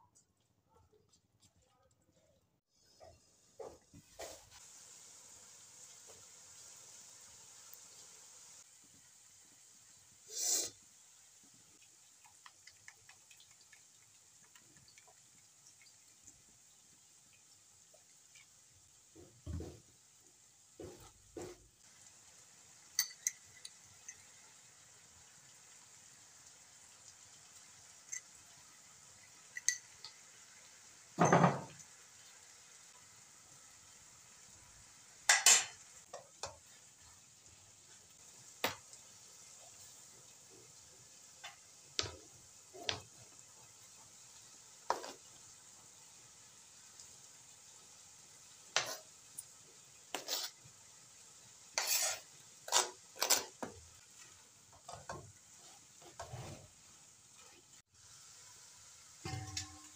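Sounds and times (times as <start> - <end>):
faint sizzle: 0.0 - 59.9
spatula stirring food in a wok: 0.0 - 59.9
spatula scraping in a wok: 44.9 - 45.4, 48.7 - 49.2, 50.0 - 50.7, 51.6 - 57.8.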